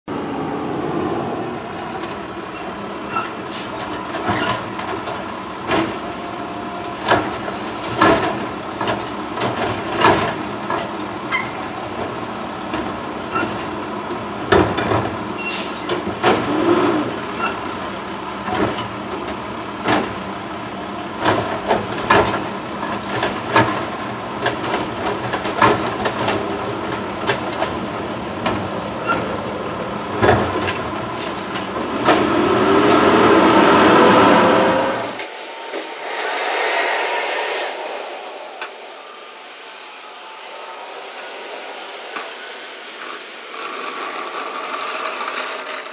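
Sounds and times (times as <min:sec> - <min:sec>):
garbage truck running: 0:00.1 - 0:36.3, 0:37.7 - 0:45.9
thin high squeal: 0:00.2 - 0:03.7.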